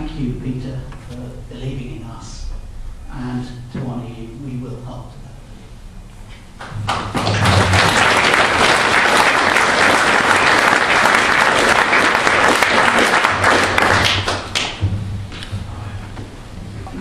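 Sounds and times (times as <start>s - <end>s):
crowd applauding: 6.6s - 14.8s.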